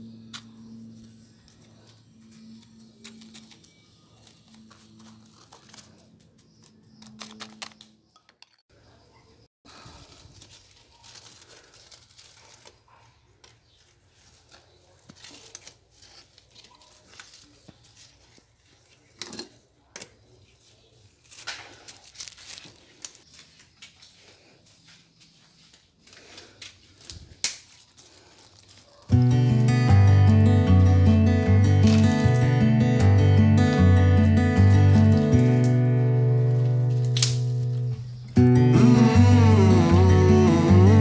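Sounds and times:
rustling of plastic grow bag: 9.7s - 19.1s, 20.4s - 29.3s, 34.2s - 38.2s.

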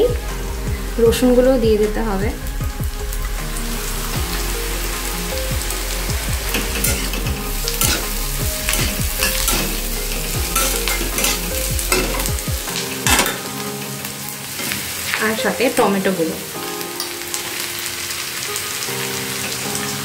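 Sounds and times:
food sizzling in oil: 2.3s - 20.0s
metal spatula scraping pan: 6.6s - 13.6s.

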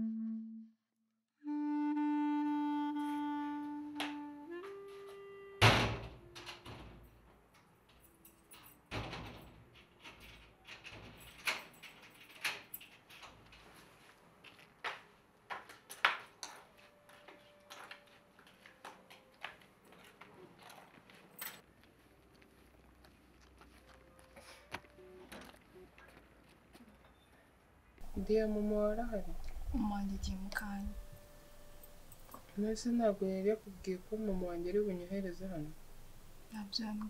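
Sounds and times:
metal door knocks and clanks: 5.6s - 7.2s, 8.9s - 12.5s.

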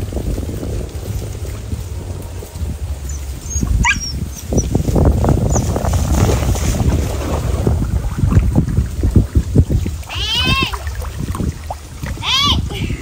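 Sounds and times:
wind rumbling on microphone: 0.0s - 13.0s
dog whining: 3.1s - 4.7s.

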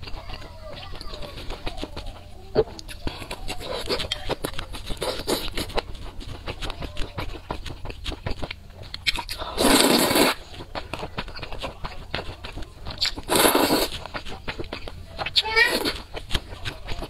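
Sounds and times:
wet chewing: 0.0s - 17.0s
noodle slurp: 2.5s - 14.9s.

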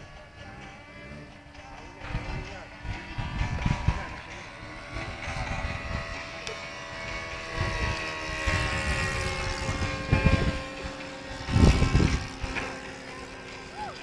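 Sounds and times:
low rumbles on microphone: 0.0s - 6.4s, 7.0s - 12.6s
model airplane buzzing: 0.0s - 14.0s.

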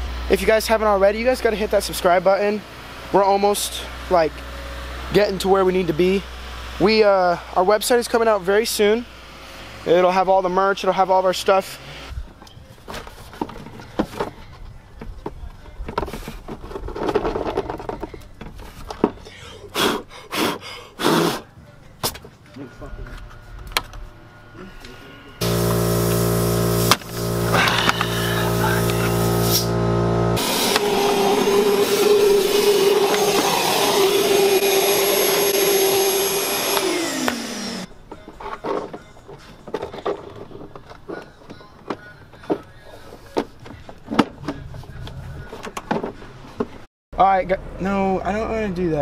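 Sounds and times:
shop vacuum motor whine: 22.6s - 37.9s.

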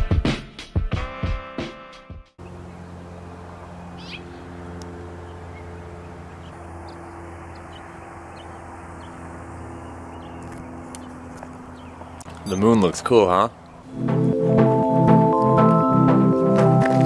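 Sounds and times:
low mechanical hum: 2.4s - 14.0s
high bird chirps: 3.9s - 4.4s, 5.3s - 12.8s.

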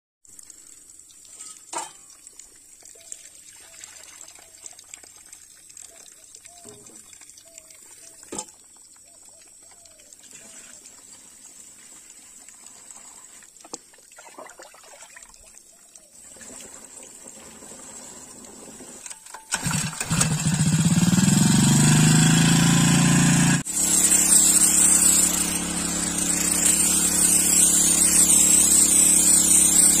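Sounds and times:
small motor running: 19.6s - 30.0s.

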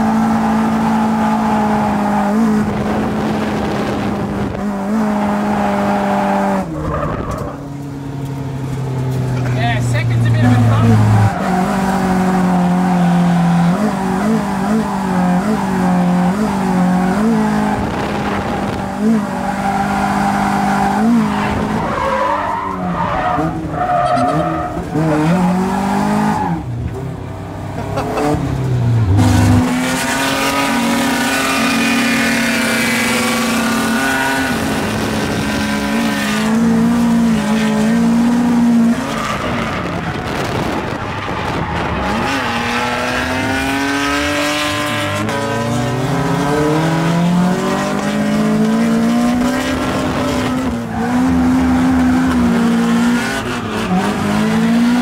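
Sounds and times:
car engine revving hard: 27.9s - 55.0s.

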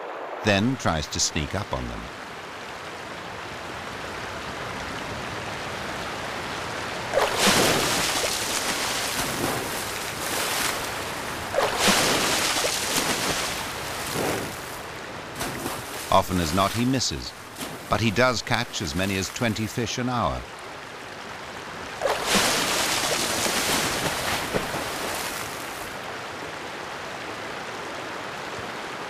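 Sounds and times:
moving water: 0.0s - 29.0s
heavy splashes in water: 7.1s - 18.0s, 22.0s - 26.0s.

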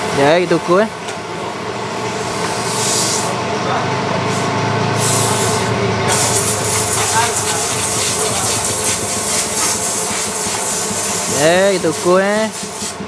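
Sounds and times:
mechanical hum: 0.0s - 13.0s
bursts of hissing: 2.5s - 3.4s, 4.3s - 13.0s.

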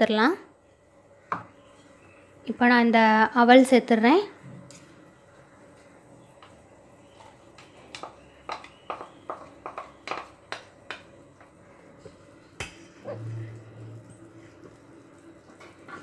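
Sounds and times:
short low hum: 13.0s - 14.4s.

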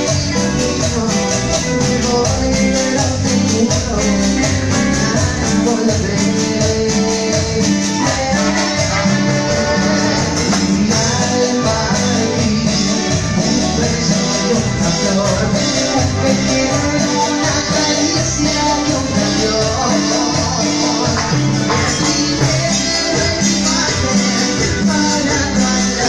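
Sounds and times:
live band playing: 0.0s - 26.0s
man singing into a microphone: 0.0s - 26.0s.

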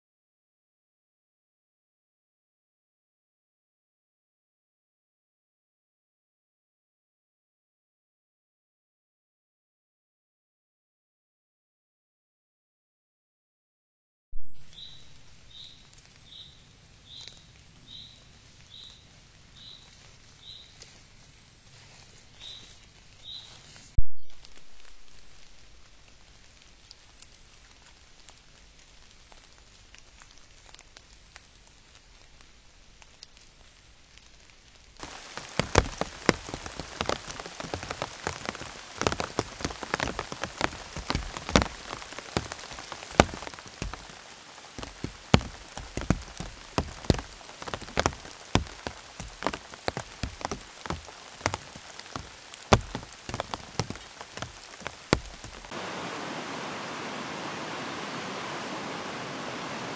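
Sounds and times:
faint steady hiss: 14.6s - 59.9s
heavy rain: 24.4s - 59.9s.

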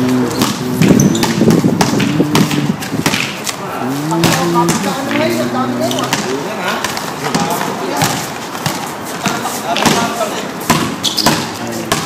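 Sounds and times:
sharp knocks and thuds: 0.4s - 3.4s.

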